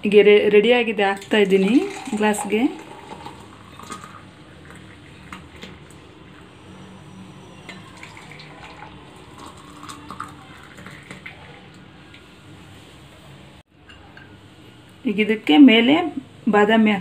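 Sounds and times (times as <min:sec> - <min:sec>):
liquid pouring into glasses: 0:01.2 - 0:06.5, 0:07.6 - 0:11.9.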